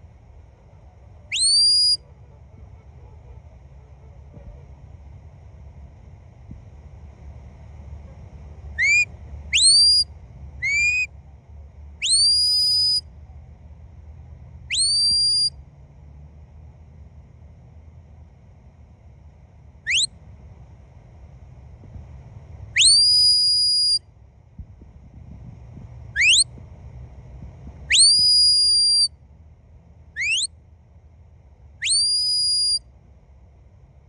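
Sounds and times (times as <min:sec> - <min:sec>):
dog whistle chirps and notes: 0:01.3 - 0:02.0, 0:08.8 - 0:11.1, 0:12.0 - 0:13.0, 0:14.7 - 0:15.5, 0:19.9 - 0:20.1, 0:22.8 - 0:24.0, 0:26.2 - 0:26.5, 0:27.9 - 0:29.1, 0:30.2 - 0:30.5, 0:31.8 - 0:32.8.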